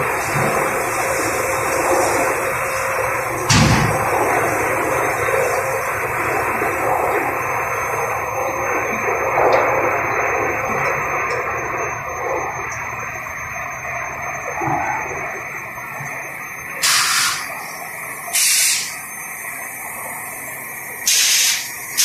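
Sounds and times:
production line machinery running: 0:00.0 - 0:13.2, 0:15.4 - 0:22.0
brief thump: 0:03.5 - 0:04.0.

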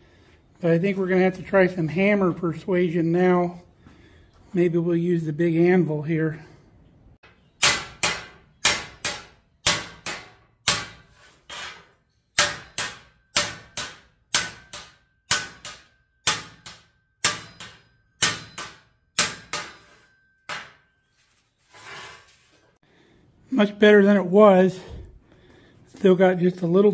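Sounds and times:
hammer striking metal: 0:07.6 - 0:11.1, 0:12.4 - 0:20.9.

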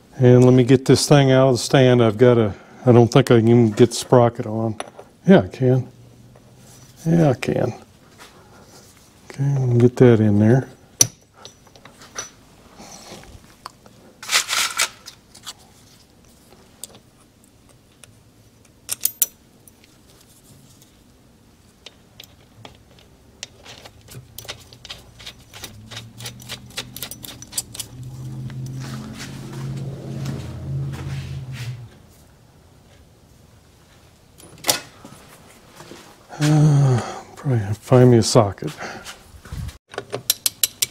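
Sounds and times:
small metal parts clinking: 0:18.9 - 0:20.0, 0:21.8 - 0:28.8
low hum: 0:22.2 - 0:33.6
metal scrapes: 0:23.5 - 0:32.2.

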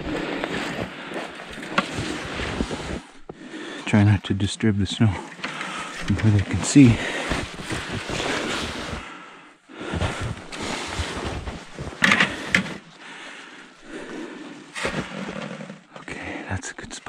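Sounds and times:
footsteps crunching in snow: 0:00.0 - 0:03.2, 0:05.8 - 0:09.0, 0:09.9 - 0:12.0.

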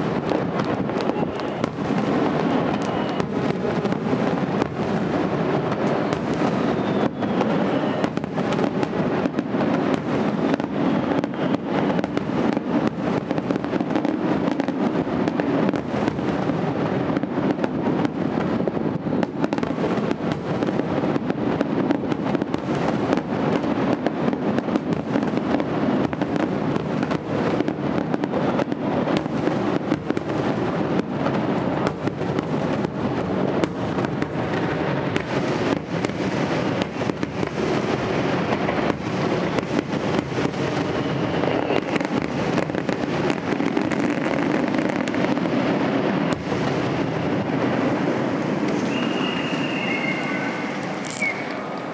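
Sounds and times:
firework shells bursting: 0:46.2 - 0:51.9.

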